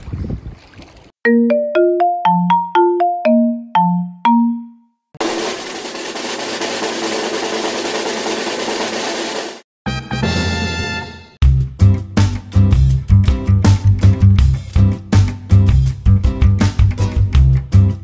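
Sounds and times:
mallet notes jingle: 1.2 - 4.9.

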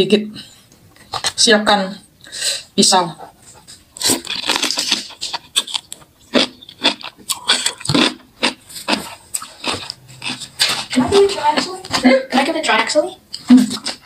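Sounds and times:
wet mouth noises: 3.2 - 12.0
chewing crunches: 3.5 - 12.0.

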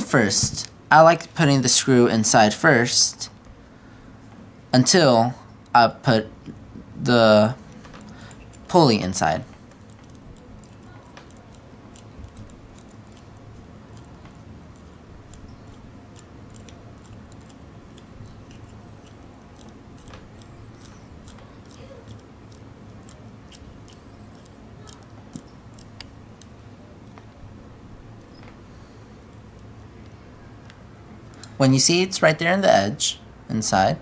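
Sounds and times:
steady low hum: 0.0 - 34.0
screwdriver turning metal screw clicks: 9.3 - 27.2.

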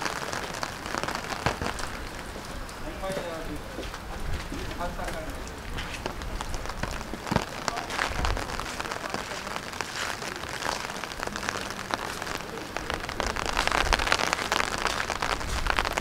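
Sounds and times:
rain pattering: 0.0 - 16.0.

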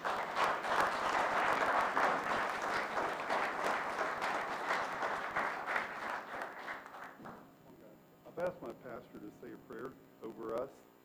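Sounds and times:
group applauding: 0.0 - 7.6.

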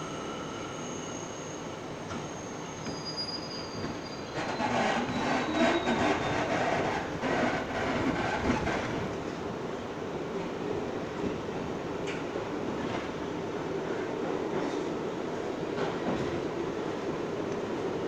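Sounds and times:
subway train motors humming: 0.0 - 18.0
train wheels clicking on rails: 3.8 - 9.4.

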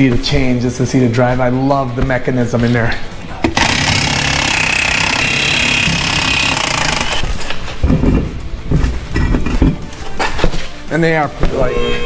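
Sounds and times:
air impact wrench hammering: 3.5 - 7.3.

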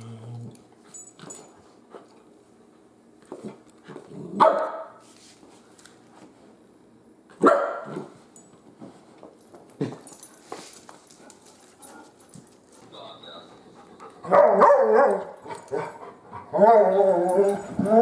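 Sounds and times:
dogs barking playfully: 4.4 - 5.0, 7.3 - 8.2, 13.8 - 18.0.

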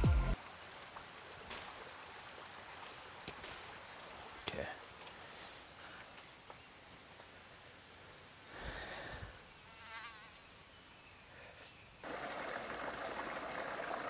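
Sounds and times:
stream rushing over rocks: 0.0 - 5.8, 12.0 - 14.0
insect buzzing: 0.3 - 14.0.

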